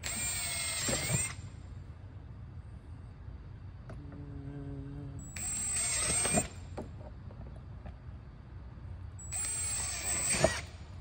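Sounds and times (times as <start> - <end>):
cordless drill boring: 0.0 - 1.4, 5.4 - 6.5, 9.3 - 10.7.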